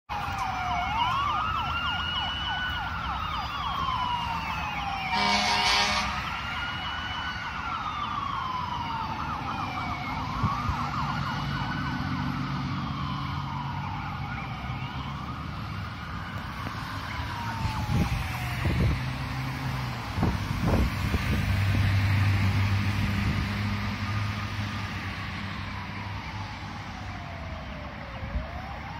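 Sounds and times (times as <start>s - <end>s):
fire truck siren wailing: 0.1s - 28.9s
warbling siren: 0.1s - 28.9s
short horn blast: 5.1s - 6.3s
heavy truck engine rumble: 9.3s - 25.9s.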